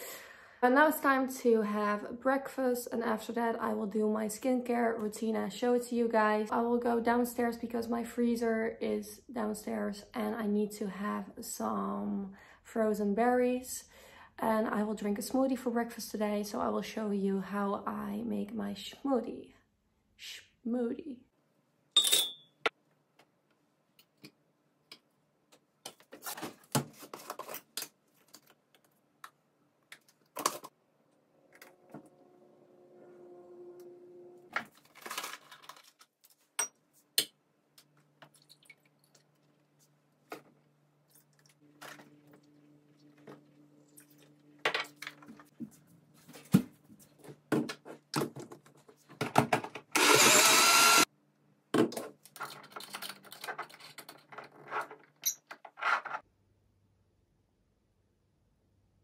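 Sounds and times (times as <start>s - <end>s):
jug blender running: 50.0s - 51.1s.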